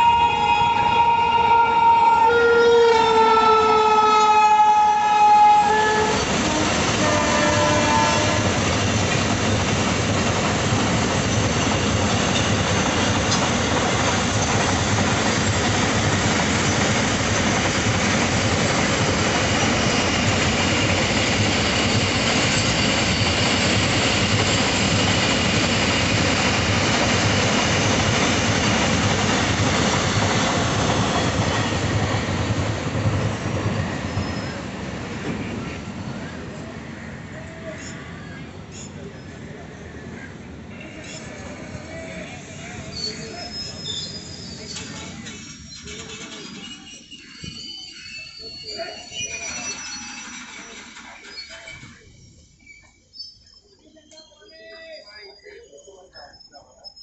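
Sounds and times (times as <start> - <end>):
locomotive air horn blasts: 0.0 - 8.6
freight train rolling past: 0.0 - 57.0.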